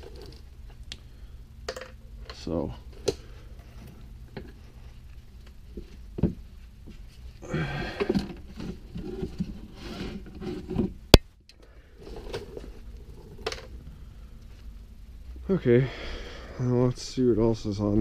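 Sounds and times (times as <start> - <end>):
rustling and light scrapes: 3.4 - 7.4, 8.3 - 10.9.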